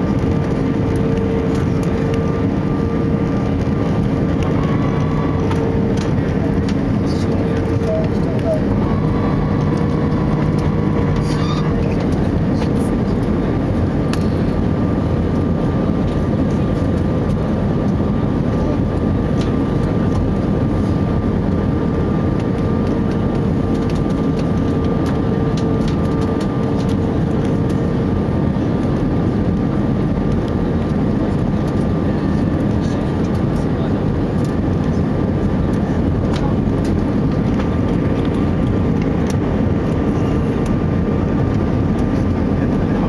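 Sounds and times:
jet engines humming: 0.0s - 43.0s.

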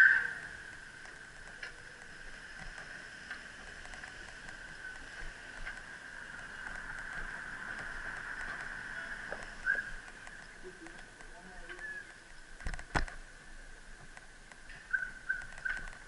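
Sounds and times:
bicycle rolling hiss: 0.0s - 12.6s
bicycle clicks and rattles: 0.4s - 16.0s.

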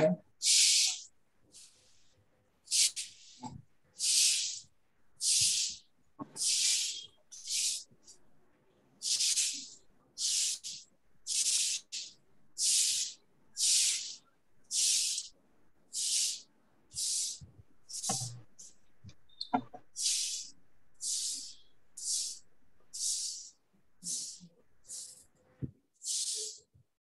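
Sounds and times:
short bursts of hiss: 0.4s - 1.8s, 2.7s - 5.8s, 6.4s - 7.9s, 9.0s - 15.3s, 16.0s - 16.4s, 17.0s - 18.7s, 20.0s - 22.4s, 26.0s - 26.7s.

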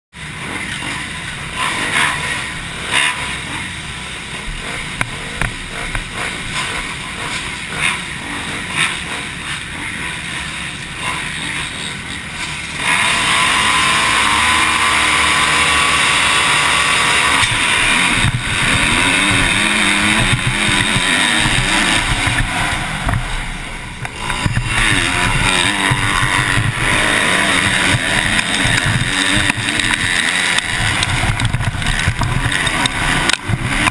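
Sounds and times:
motocross bike engines revving: 0.1s - 33.9s
wind rushing over microphone: 17.3s - 33.9s.

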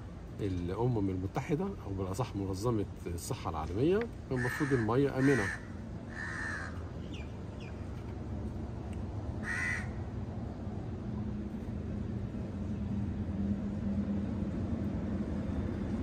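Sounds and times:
crow cawing: 4.3s - 6.9s, 9.4s - 10.0s
low rumble and hum: 5.6s - 16.0s.

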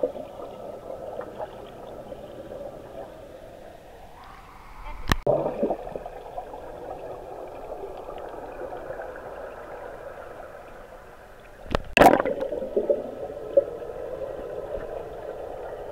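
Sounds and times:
air bubbles rushing: 4.8s - 15.9s.

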